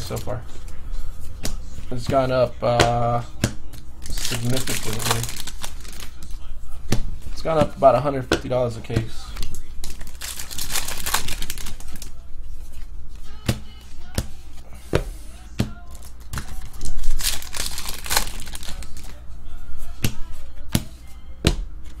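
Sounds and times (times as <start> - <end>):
foil wrapper crinkling and tearing: 4.0 - 6.3, 9.3 - 12.1, 15.9 - 19.2.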